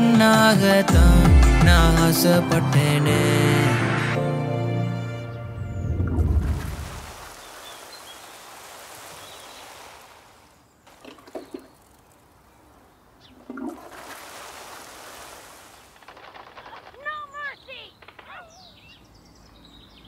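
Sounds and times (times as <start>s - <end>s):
water pouring from bucket: 5.9s - 10.0s, 10.9s - 12.2s, 13.4s - 16.9s.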